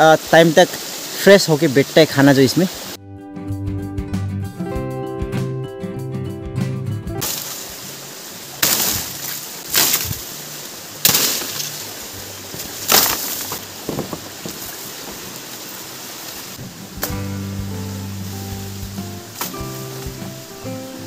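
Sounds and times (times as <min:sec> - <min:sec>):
music: 0:03.0 - 0:07.3, 0:16.6 - 0:21.0
leaves snapping off stalks: 0:07.2 - 0:07.6, 0:08.5 - 0:17.3, 0:19.4 - 0:20.2
leaves rustling: 0:07.2 - 0:21.0.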